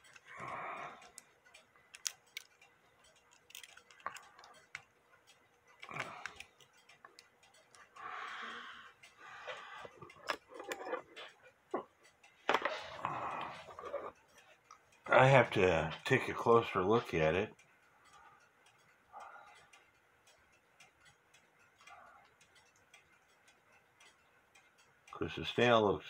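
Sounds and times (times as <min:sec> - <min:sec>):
small metallic clicks: 0:00.0 - 0:15.1.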